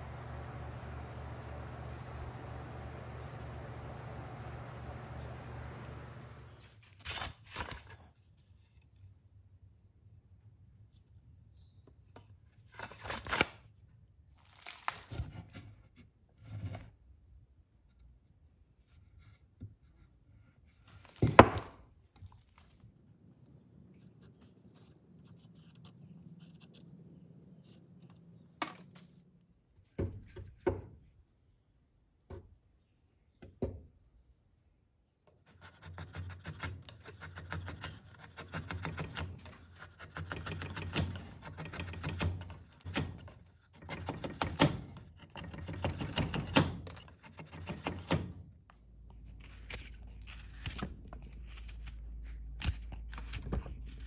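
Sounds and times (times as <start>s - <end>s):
drawknife shaving wood: 12.6s - 13.6s, 23.8s - 29.3s, 35.3s - 54.0s.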